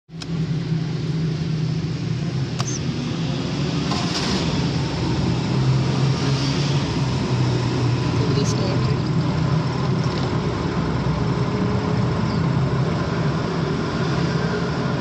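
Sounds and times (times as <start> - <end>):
sharp click: 2.6 - 2.8
car engine running: 6.8 - 13.6.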